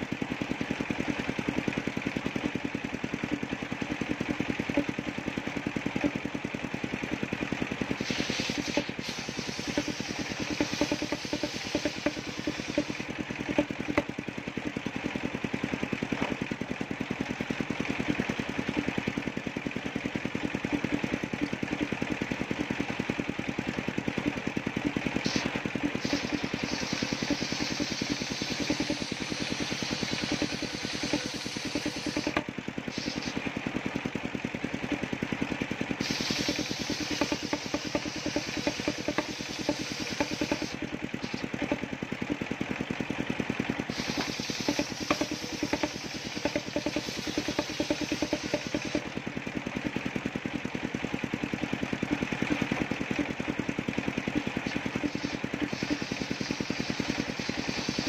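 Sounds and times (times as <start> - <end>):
engine running rhythmically: 0.0 - 58.0
saw cutting planks: 7.9 - 14.1, 24.2 - 33.5, 36.0 - 41.9, 43.9 - 49.2, 54.3 - 58.0.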